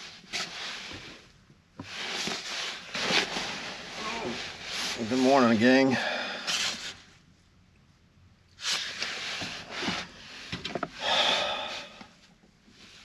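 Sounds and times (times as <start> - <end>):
person exhaling breathily: 11.0 - 12.2.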